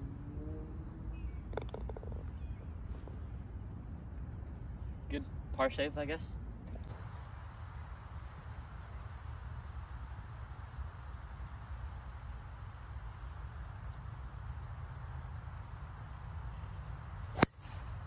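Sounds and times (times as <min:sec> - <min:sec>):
golf club striking ball: 0:01.5 - 0:02.2, 0:17.4 - 0:17.9.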